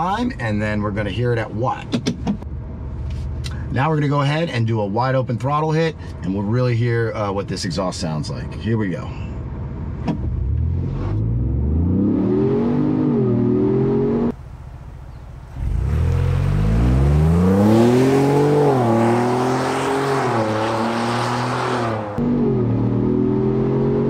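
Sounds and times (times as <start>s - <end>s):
engine accelerating with upshifts: 9.8s - 24.0s.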